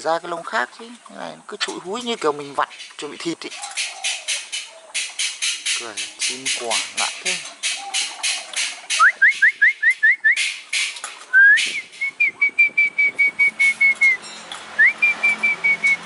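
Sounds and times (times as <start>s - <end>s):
harsh bird rasps: 2.4s - 15.6s
bird whistling: 7.8s - 10.5s, 11.3s - 16.0s.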